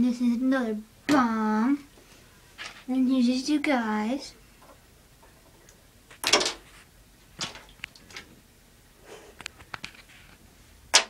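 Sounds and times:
plastic bath toys knocking: 6.2 - 6.6, 7.4 - 8.3
hand splashing bathwater: 7.3 - 8.3.

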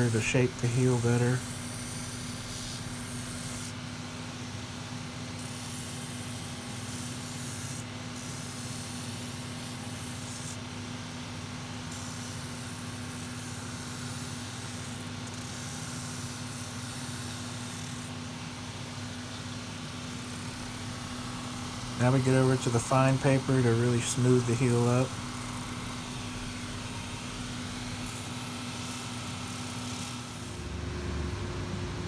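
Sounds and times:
sanding hiss on leather: 5.4 - 10.6, 11.9 - 18.0
machine humming: 20.1 - 32.0.

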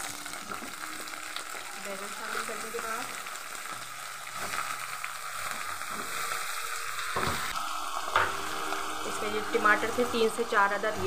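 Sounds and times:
vegetables sizzling in oil: 0.0 - 11.0.

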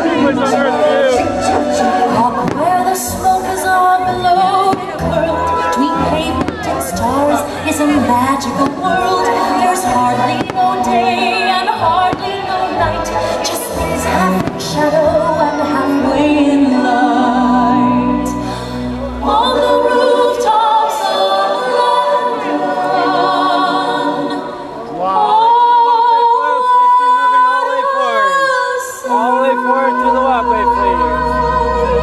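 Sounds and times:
orchestral music: 0.0 - 20.5
choir singing held notes: 0.0 - 32.0.

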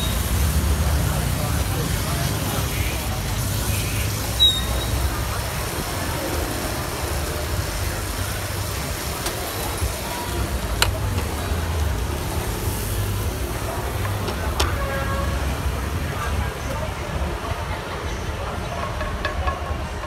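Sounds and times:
street traffic rumble: 0.0 - 20.0
pan and utensils knocking: 18.6 - 20.0.

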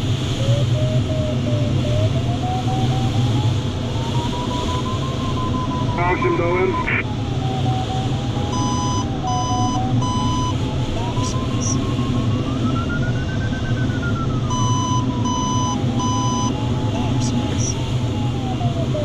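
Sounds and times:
variometer tone gliding in pitch: 8.4 - 17.7
short electronic beeps: 14.5 - 16.5.

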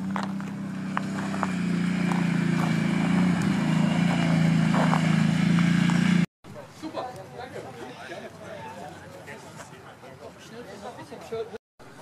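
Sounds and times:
quad bike engine running: 0.0 - 6.3.

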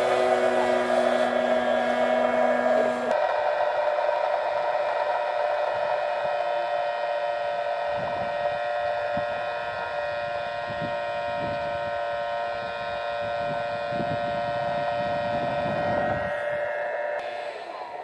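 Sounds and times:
electric motor and propeller whine: 0.0 - 18.0
wind buffeting microphone: 7.8 - 17.1.

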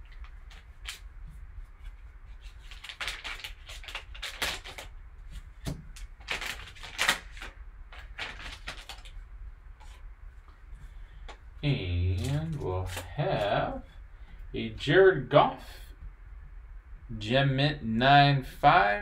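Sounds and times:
foil wrapper crinkling and tearing: 0.0 - 1.1, 2.4 - 5.0, 6.0 - 9.2, 12.2 - 13.7
low steady hum: 0.0 - 19.0.

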